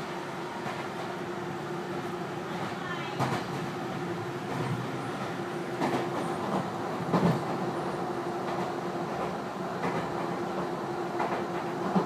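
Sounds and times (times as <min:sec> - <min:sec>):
train rumble and hum: 0:00.0 - 0:12.0.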